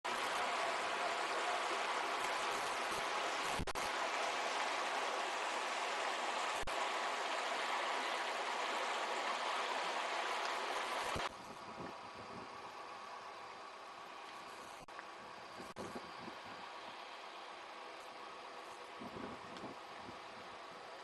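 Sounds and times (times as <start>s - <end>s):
river flowing over stones: 0.1s - 11.3s.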